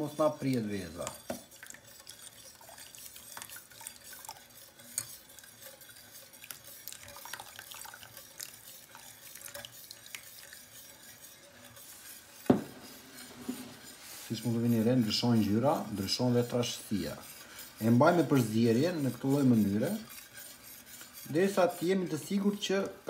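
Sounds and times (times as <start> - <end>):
broth sloshing in a pot: 0.0 - 23.0
whisk clinking on pot: 0.0 - 23.0
whisk wires ticking against pot: 0.0 - 23.0.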